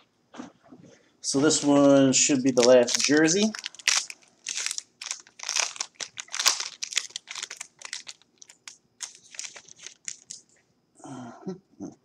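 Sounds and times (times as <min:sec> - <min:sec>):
wrapper tearing and crinkling: 0:02.5 - 0:10.4.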